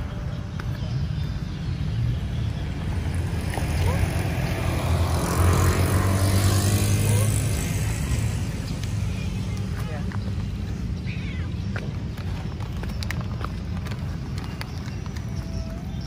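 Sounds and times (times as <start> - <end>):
vehicle driving past: 2.6 - 8.8.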